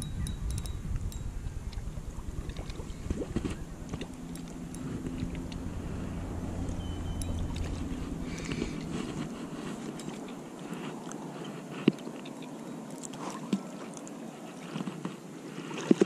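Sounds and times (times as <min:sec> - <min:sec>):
wind buffeting microphone: 0:00.0 - 0:12.1
steady low hum: 0:00.0 - 0:13.0.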